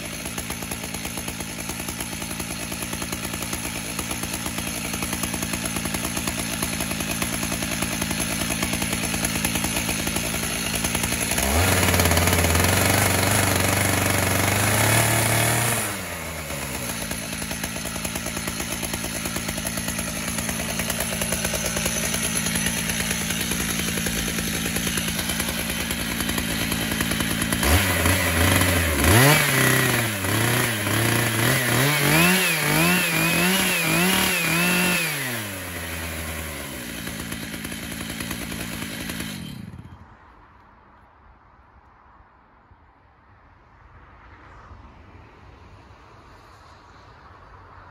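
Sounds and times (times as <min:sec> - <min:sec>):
chainsaw running: 0:00.0 - 0:40.0.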